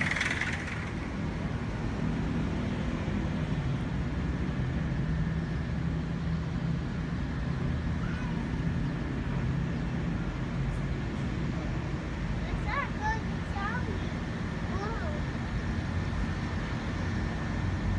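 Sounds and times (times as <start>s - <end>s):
distant traffic rumble: 0.0s - 17.9s.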